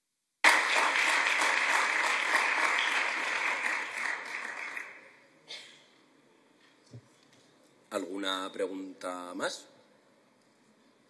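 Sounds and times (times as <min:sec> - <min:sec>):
audience applauding: 0:00.4 - 0:05.2.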